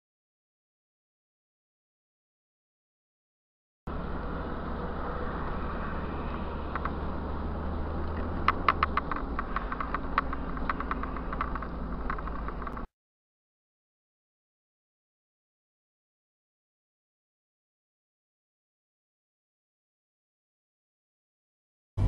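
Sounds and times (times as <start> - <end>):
car engine and road noise: 3.9 - 12.9
sharp irregular clicks: 6.3 - 7.0, 8.0 - 12.9.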